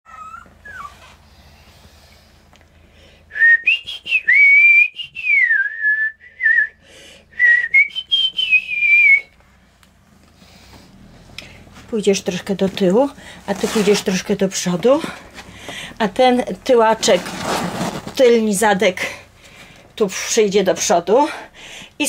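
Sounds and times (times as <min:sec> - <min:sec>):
person whistling: 0:03.3 - 0:06.8, 0:07.4 - 0:09.3.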